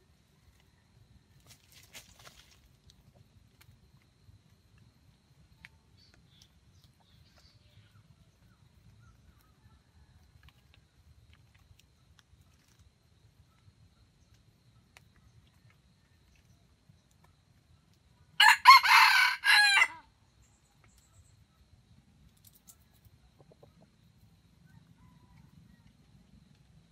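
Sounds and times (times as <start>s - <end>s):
rooster crowing: 18.4s - 20.1s.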